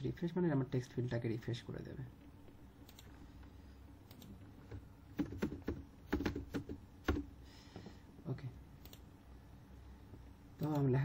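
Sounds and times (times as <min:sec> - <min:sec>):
typing on computer keyboard: 0:05.1 - 0:07.3.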